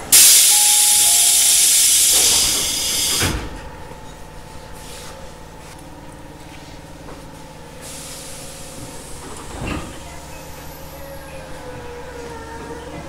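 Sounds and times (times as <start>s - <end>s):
loud hiss of compressed air: 0.0s - 3.4s.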